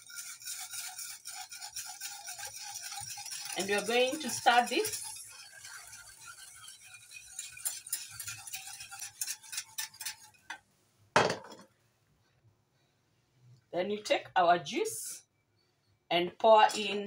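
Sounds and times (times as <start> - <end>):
whisk clinking against saucepan: 0.0 - 10.6, 16.7 - 17.0
pan knocking on counter: 11.2 - 11.6.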